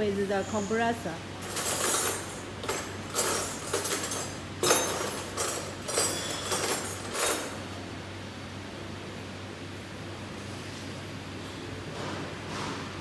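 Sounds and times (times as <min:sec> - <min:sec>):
light metallic clinks: 0:01.4 - 0:07.6.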